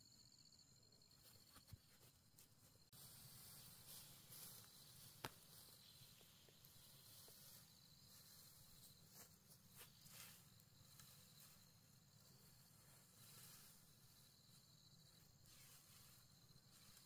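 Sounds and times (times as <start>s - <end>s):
faint steady hiss: 1.2s - 17.0s
rustling of ferns and brush: 1.2s - 17.0s
soft crackles and clicks: 4.3s - 7.4s.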